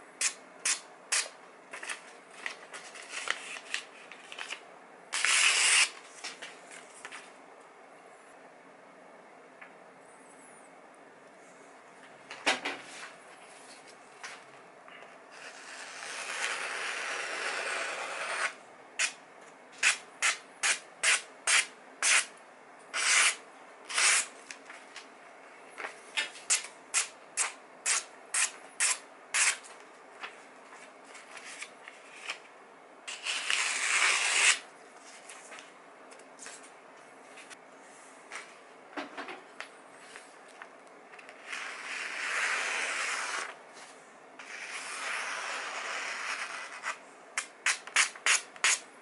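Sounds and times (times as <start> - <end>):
continuous paper noise: 1.2 - 4.6
knife cutting paper: 5.2 - 6.0, 15.4 - 19.2, 23.0 - 24.3, 33.1 - 34.6, 41.3 - 43.6, 44.4 - 48.8.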